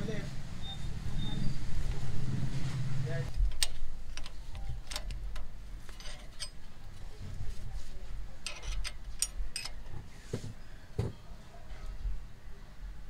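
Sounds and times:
wrench clinking on metal bolt: 0:03.5 - 0:06.7, 0:08.4 - 0:09.8.

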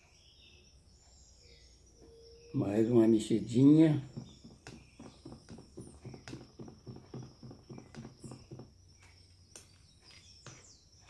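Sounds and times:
spoon stirring slime in cup: 0:04.1 - 0:08.7.

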